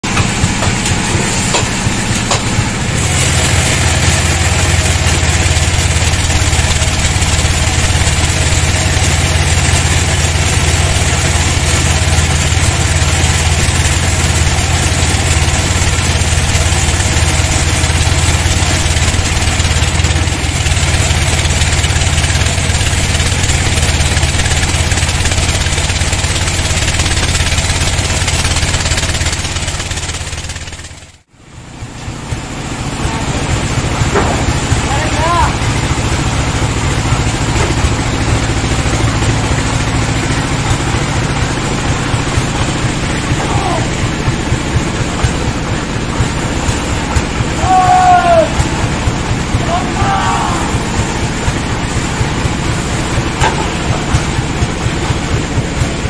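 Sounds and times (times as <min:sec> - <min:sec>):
saw blade cutting wood: 0:00.0 - 0:30.8
sawmill machine hum: 0:00.0 - 0:56.0.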